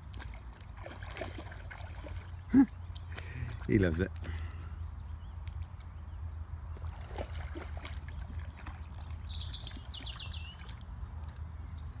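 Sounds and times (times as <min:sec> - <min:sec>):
water splashing around a dog: 0:00.0 - 0:12.0
songbird trill: 0:04.4 - 0:07.2, 0:07.8 - 0:12.0.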